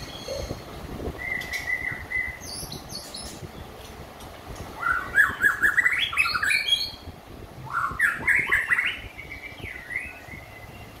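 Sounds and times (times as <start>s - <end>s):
bird singing whistled notes: 0.0s - 3.7s, 4.8s - 11.0s.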